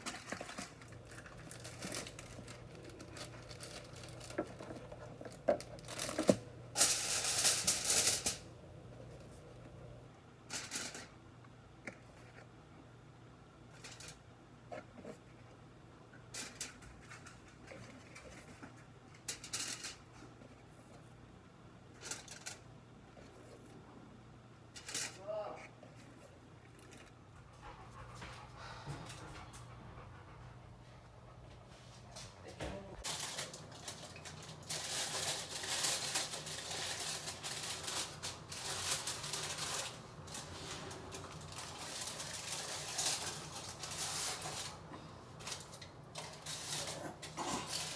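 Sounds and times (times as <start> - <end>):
aluminium foil crumpling: 0.0 - 8.5, 33.0 - 47.9
low steady hum: 0.0 - 47.9.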